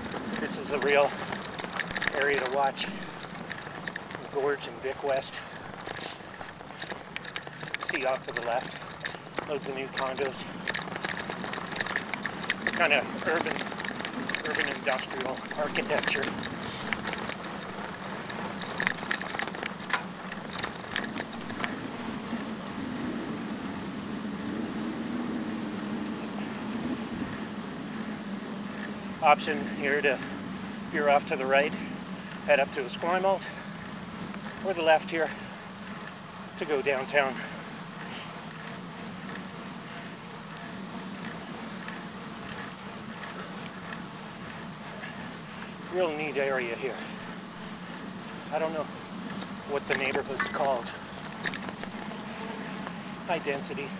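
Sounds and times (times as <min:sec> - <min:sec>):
tyres rolling on asphalt: 0:00.0 - 0:53.9
wind over microphone: 0:10.2 - 0:31.0.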